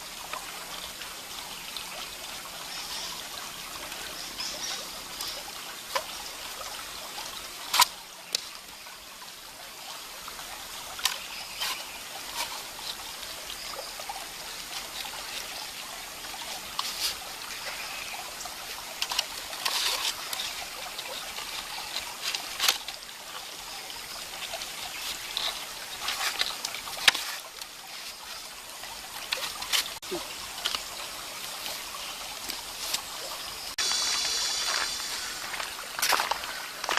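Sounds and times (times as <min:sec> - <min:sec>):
creek trickling over stones: 0:00.0 - 0:36.9.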